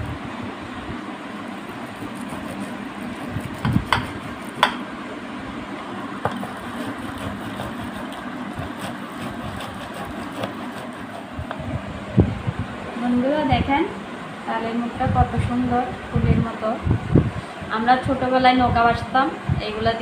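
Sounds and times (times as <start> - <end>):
fruit scraping on metal grater: 1.6 - 4.7, 6.3 - 11.4.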